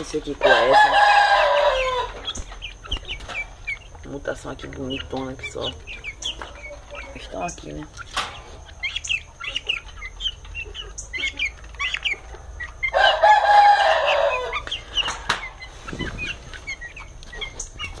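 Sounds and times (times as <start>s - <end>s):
quail and poultry chirping: 0.0s - 18.0s
rooster crowing: 0.4s - 2.2s, 12.8s - 14.7s.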